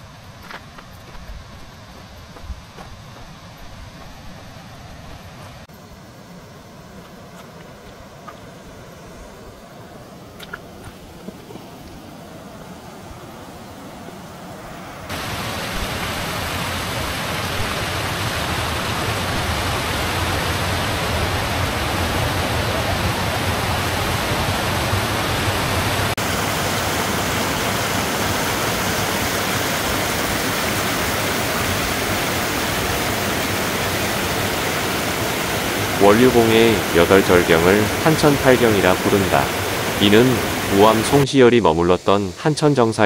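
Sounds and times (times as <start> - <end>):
stream rushing over rocks: 10.6 - 41.2.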